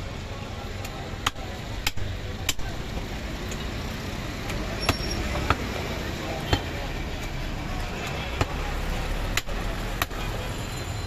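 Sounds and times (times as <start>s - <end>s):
cleaver chopping on wooden block: 1.2s - 2.6s, 9.3s - 10.2s.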